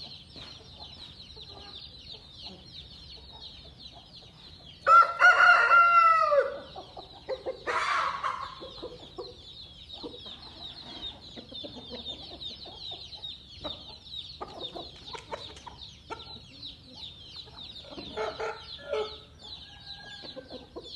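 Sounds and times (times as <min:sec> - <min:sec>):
chicken clucking: 0:00.0 - 0:20.9
harsh rooster call: 0:04.9 - 0:06.6
rooster crowing: 0:04.9 - 0:06.7.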